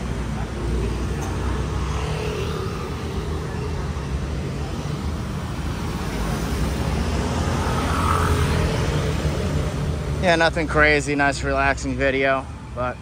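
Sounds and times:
motorcycles passing: 0.0s - 13.0s
car passing close by: 6.4s - 9.9s.

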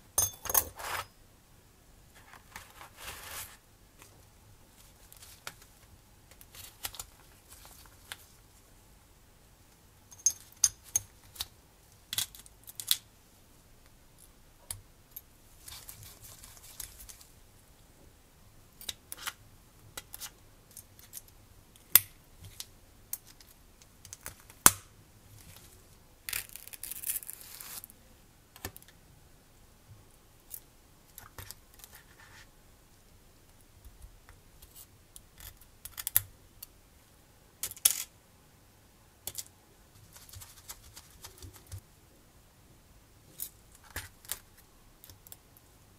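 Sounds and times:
rustling: 2.1s - 8.7s, 15.5s - 17.4s
small parts clicking and tapping: 33.8s - 36.3s, 37.6s - 38.1s, 39.2s - 39.5s.

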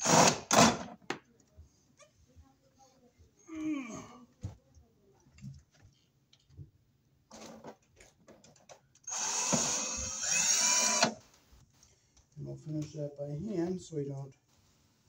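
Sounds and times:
cordless drill driving screws: 0.0s - 0.8s, 9.1s - 11.2s.

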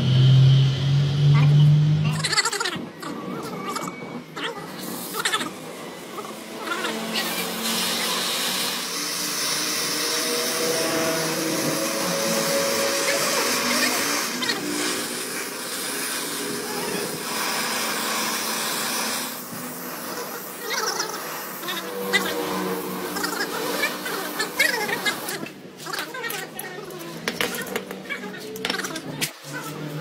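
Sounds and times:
gas torch flame hissing: 7.0s - 25.6s.

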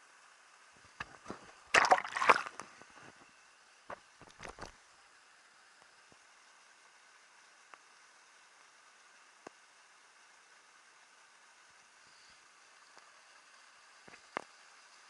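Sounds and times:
water sloshing and splashing: 1.3s - 2.8s.

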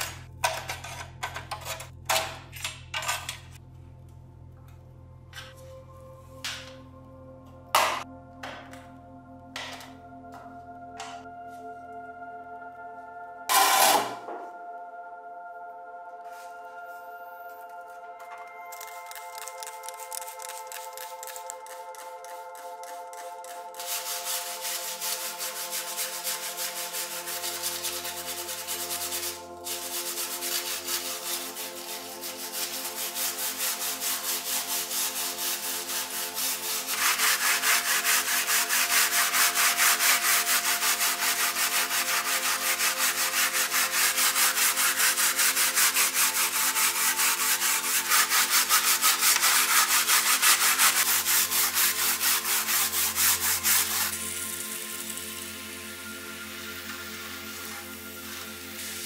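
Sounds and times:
wire brush scrubbing metal: 19.6s - 55.2s.

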